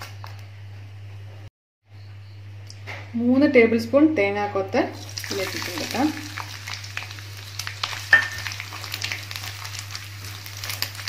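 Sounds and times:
coconut frying and sizzling: 4.9s - 11.0s.

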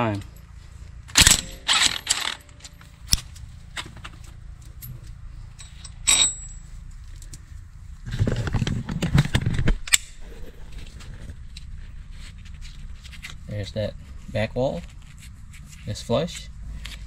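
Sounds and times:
metal tools clattering: 3.8s - 7.3s
ringing metallic clink: 5.6s - 6.7s.

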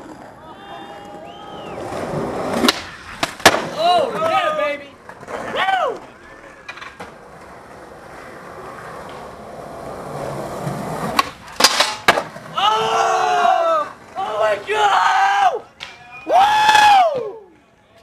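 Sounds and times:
skateboard wheels rolling on concrete: 0.0s - 18.0s
people yelling: 0.4s - 2.0s, 5.4s - 6.7s, 12.5s - 17.6s
skateboard landing snap: 2.5s - 3.8s, 11.0s - 12.4s
skateboard tail pop: 2.5s - 3.8s, 11.1s - 12.4s
skateboard grinding metal handrail: 6.4s - 12.5s.

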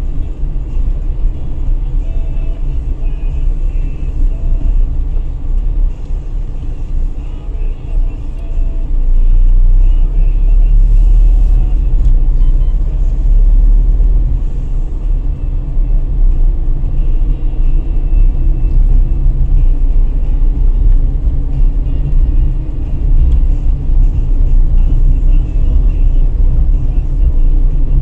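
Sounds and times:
car road and engine rumble: 0.0s - 28.0s.

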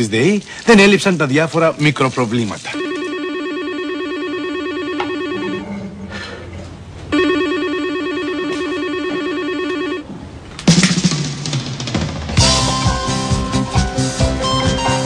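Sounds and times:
electronic telephone ringing: 2.8s - 6.0s, 7.1s - 10.2s.

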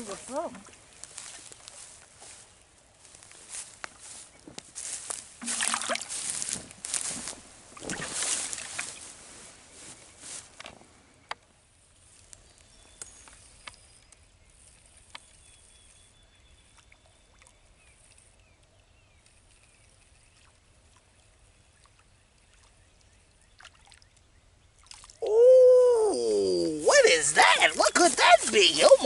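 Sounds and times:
rustling noise: 1.0s - 11.0s
faint high bird chirps: 12.4s - 20.5s.

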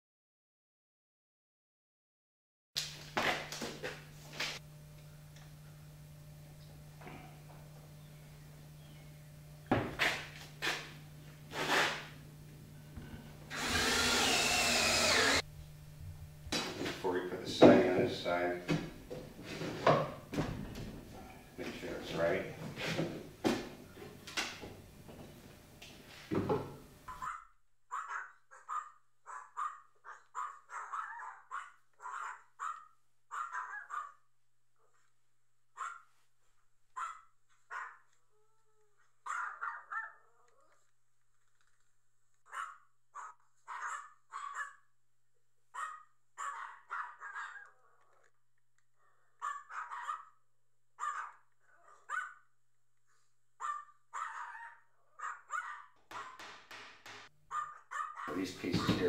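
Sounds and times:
dog barking: 27.1s - 34.2s, 35.8s - 36.1s, 37.0s - 38.1s, 39.2s - 40.4s, 42.5s - 44.9s, 45.8s - 47.8s, 49.4s - 50.4s, 51.0s - 52.5s, 53.6s - 56.4s, 57.5s - 59.0s.

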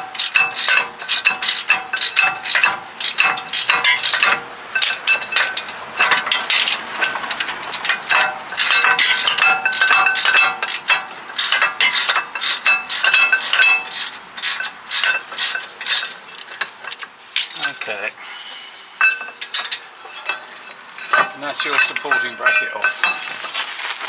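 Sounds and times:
metal clinks: 7.8s - 18.1s.

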